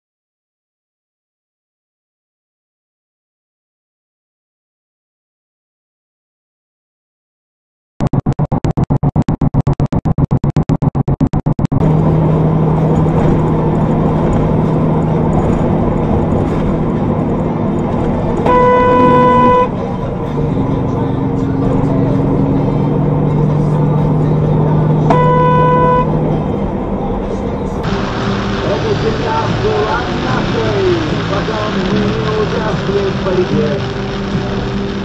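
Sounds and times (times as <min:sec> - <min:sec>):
truck engine drone: 0:08.0 - 0:35.0
road noise: 0:11.7 - 0:35.0
truck horn blasts: 0:18.4 - 0:20.0, 0:25.0 - 0:26.4.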